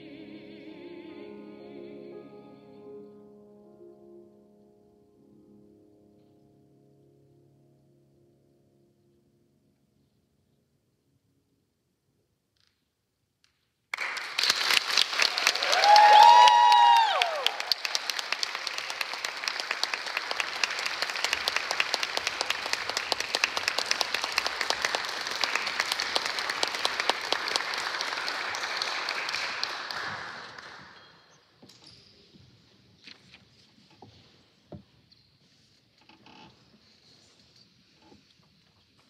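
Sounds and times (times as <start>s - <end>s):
audience applauding: 13.9s - 31.3s
person whooping: 15.4s - 17.7s
faint knocks and creaks: 31.0s - 39.0s.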